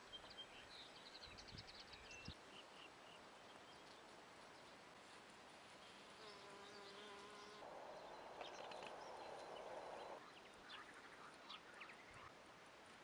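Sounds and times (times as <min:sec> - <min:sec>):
honeybee buzzing in flight: 0:06.2 - 0:08.0.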